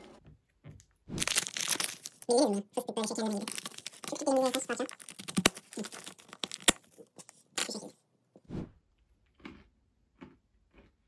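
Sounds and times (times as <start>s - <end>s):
foil wrapper crinkling: 1.2s - 7.9s.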